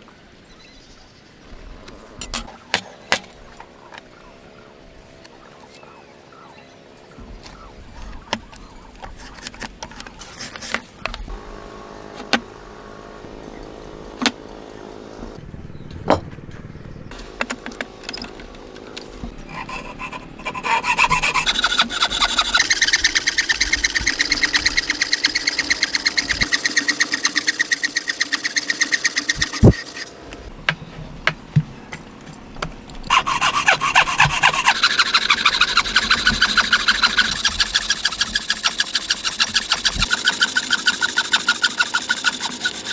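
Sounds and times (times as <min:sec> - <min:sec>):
hand saw cutting wood: 0:19.3 - 0:30.2, 0:33.1 - 0:42.9.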